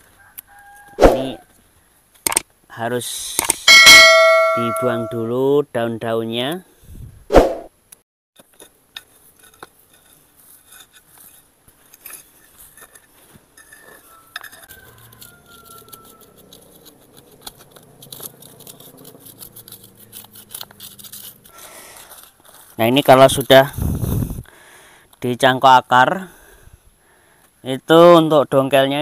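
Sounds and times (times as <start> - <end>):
metal rod scraping in gravel: 8.4 - 23.6.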